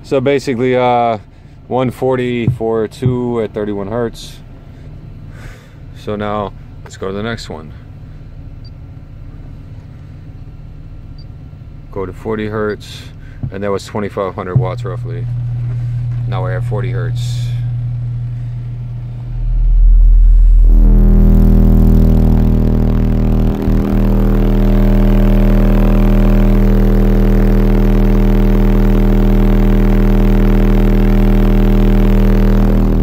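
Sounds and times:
loud steady bass tone: 0:00.0 - 0:33.0
buzzy overtones: 0:14.4 - 0:33.0.

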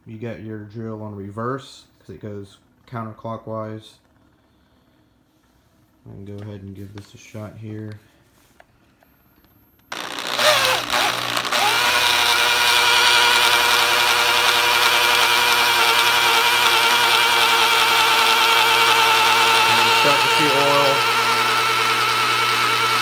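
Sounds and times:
electric drill spinning under load: 0:09.9 - 0:23.0.

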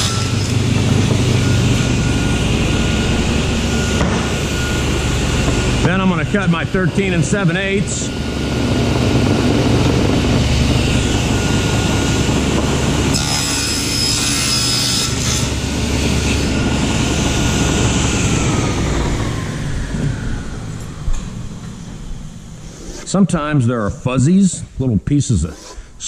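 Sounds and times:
saw blade winding down: 0:00.0 - 0:05.3, 0:09.3 - 0:21.0
table saw whining: 0:00.0 - 0:24.6
saw blade ripping through hardboard: 0:13.1 - 0:15.5.

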